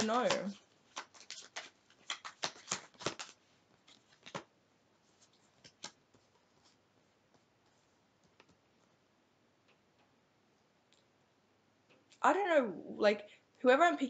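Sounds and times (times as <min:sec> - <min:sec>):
cards being shuffled: 0:00.0 - 0:04.5, 0:05.1 - 0:08.6.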